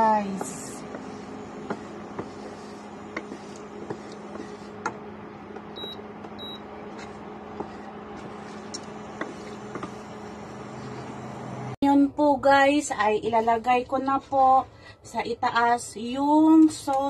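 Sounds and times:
wooden spoon stirring sauce: 0.0s - 11.2s
steady low hum: 0.0s - 16.5s.

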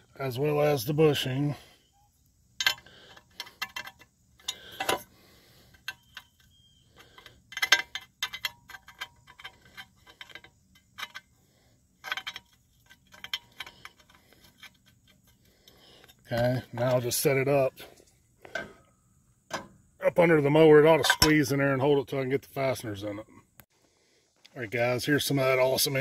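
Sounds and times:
metal bracket clicks and clinks: 2.6s - 5.1s, 5.7s - 11.3s, 12.0s - 15.2s, 20.9s - 21.6s.

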